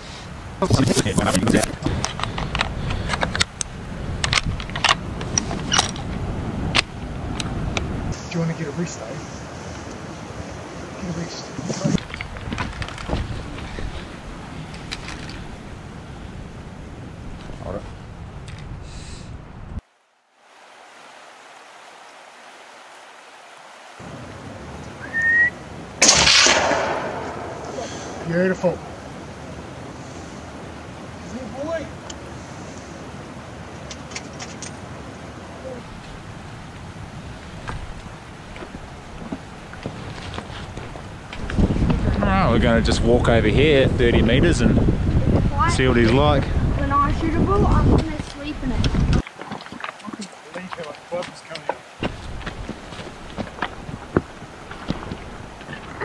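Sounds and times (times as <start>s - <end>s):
low wind rumble: 0.0s - 49.2s, 51.8s - 56.0s
short rising whistle: 25.0s - 25.6s
rifle shot echoing: 26.0s - 28.2s.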